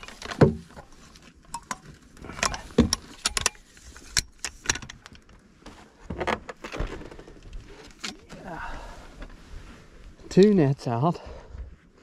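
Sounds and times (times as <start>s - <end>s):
fishing gear clinking and knocking: 0.0s - 5.5s.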